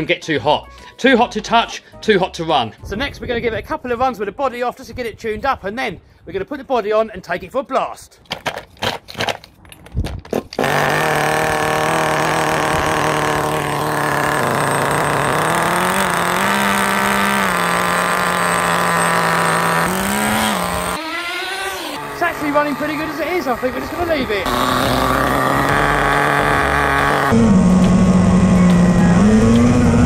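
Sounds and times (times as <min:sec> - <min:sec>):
pull-start cord rattling: 0:10.4 - 0:21.0
small engine idling: 0:10.6 - 0:21.0, 0:22.0 - 0:30.0.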